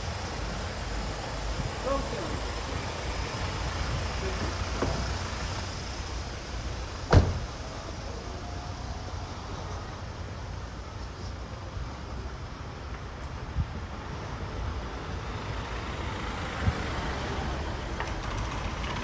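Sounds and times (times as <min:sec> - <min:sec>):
traffic rumble: 0:00.0 - 0:19.0
sharp knock: 0:07.1 - 0:07.4.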